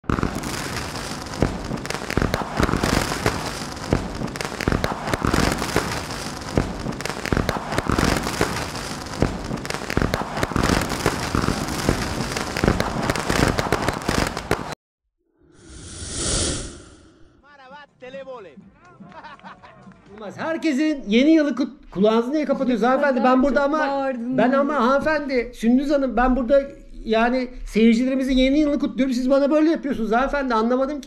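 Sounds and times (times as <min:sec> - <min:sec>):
fireworks bangs: 0:00.0 - 0:14.8
fireworks crackling and popping: 0:00.0 - 0:14.8.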